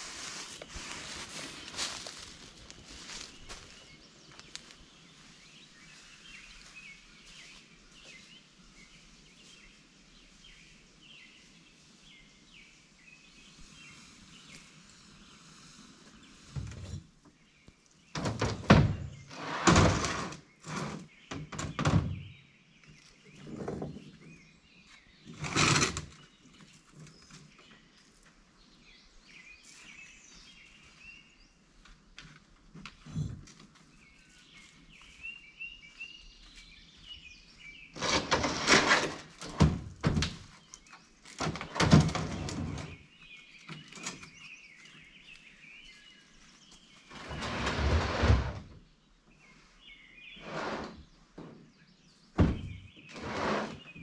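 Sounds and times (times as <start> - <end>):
birds chirping faintly: 0.0 - 54.0
boxes thudding and scraping: 18.2 - 22.3, 38.0 - 40.4.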